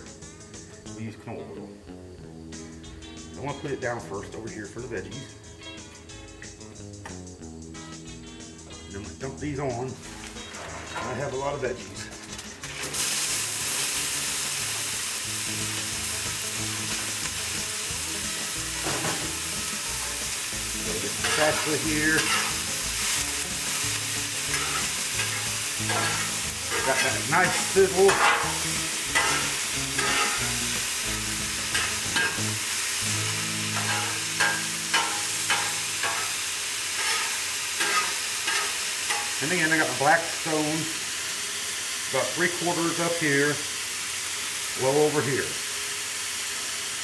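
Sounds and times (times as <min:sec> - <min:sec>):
vegetables sizzling on a griddle: 0:09.9 - 0:47.0
metal spatula scraping steel plate: 0:21.2 - 0:22.6, 0:24.5 - 0:30.6, 0:31.7 - 0:32.5, 0:33.7 - 0:36.4, 0:37.0 - 0:39.4.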